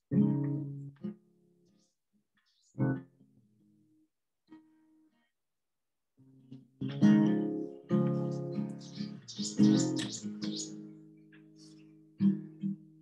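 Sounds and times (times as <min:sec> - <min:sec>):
acoustic guitar strumming chords: 0:00.1 - 0:01.3, 0:06.4 - 0:13.0.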